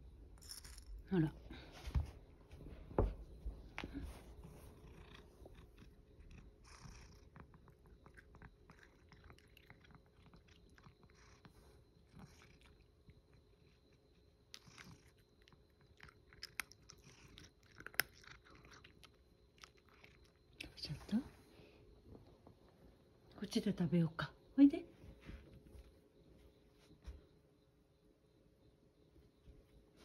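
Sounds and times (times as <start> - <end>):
cat chewing dry food: 4.9 - 20.6.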